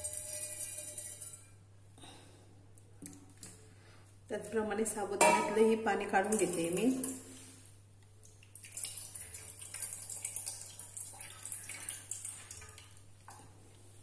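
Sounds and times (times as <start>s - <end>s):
water trickling into steel pot: 0.0s - 1.5s, 8.2s - 13.4s.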